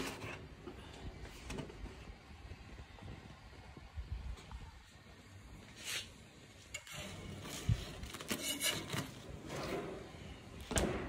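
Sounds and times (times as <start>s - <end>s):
scraping and rubbing strokes: 5.7s - 10.1s.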